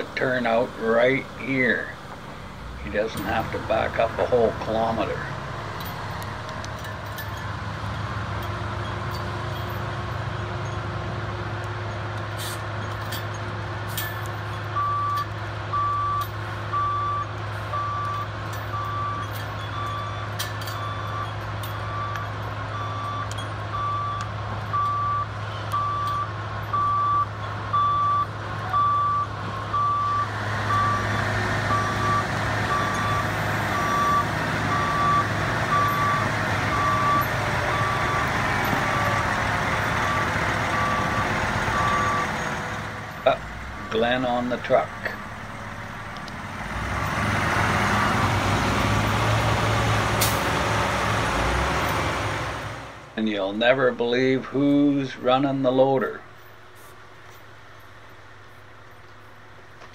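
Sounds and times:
diesel truck engine running: 0.0s - 59.9s
back-up alarm beeping: 14.8s - 42.5s.

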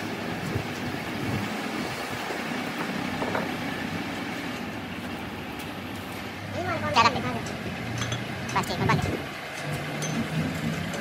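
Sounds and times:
metal knocks: 2.7s - 3.7s.

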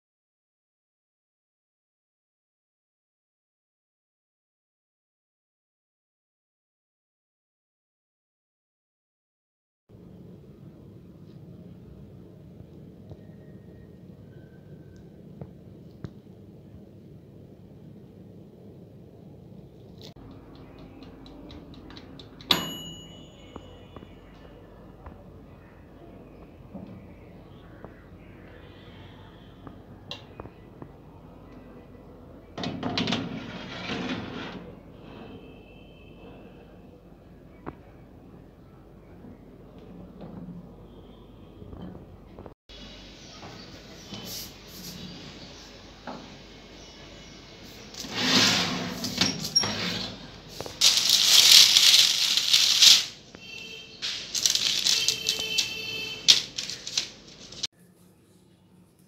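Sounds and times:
metal tray scraping into oven: 33.1s - 35.4s, 48.0s - 50.4s
parchment rustling: 47.7s - 57.7s.

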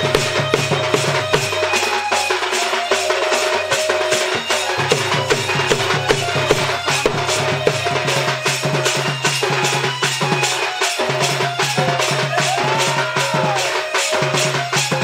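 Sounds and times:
fast percussion beat: 0.0s - 15.0s
gliding melody line: 2.2s - 8.3s.

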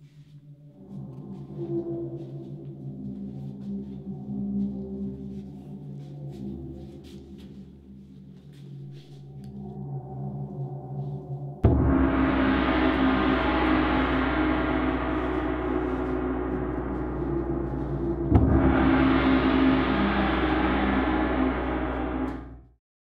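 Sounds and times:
resonant percussion strike ringing: 11.6s - 22.7s.

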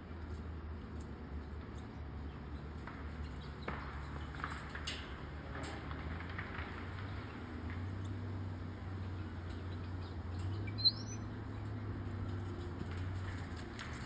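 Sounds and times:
high-pitched animal squeak: 10.7s - 11.3s.

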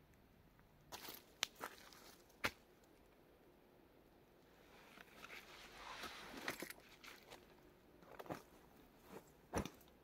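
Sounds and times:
footsteps crunching on forest floor: 0.9s - 2.6s.

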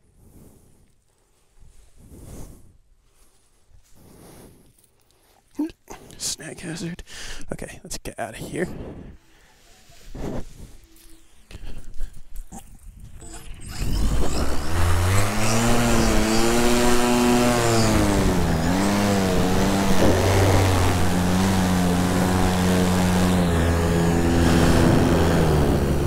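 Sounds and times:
electric motor and propeller hum: 13.0s - 26.0s.

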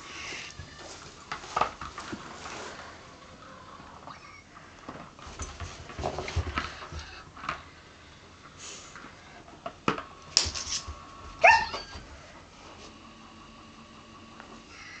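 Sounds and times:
dog scuffling and paw taps: 10.4s - 12.0s
dog barking: 11.4s - 11.9s.

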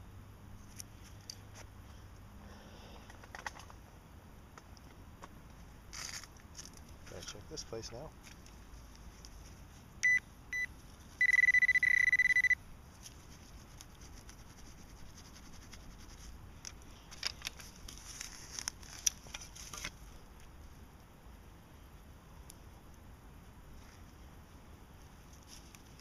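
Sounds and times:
metal detector beeping: 10.0s - 12.6s
fingers scraping through soil: 13.0s - 20.0s.

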